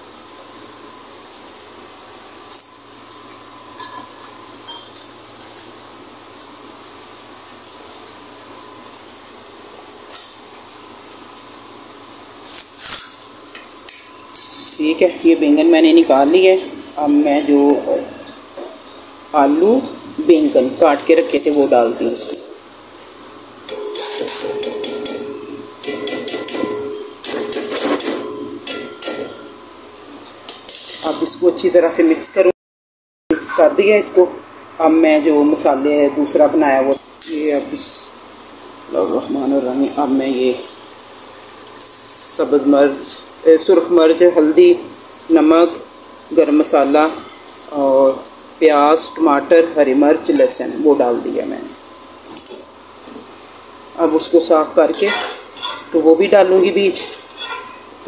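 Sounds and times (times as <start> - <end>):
oil sizzling in a metal pan: 0.0 - 14.7, 20.8 - 31.1, 44.8 - 49.1, 51.7 - 56.2, 56.8 - 58.0
metal tongs clinking on pan: 3.8 - 5.8, 54.9 - 55.9, 57.0 - 57.9.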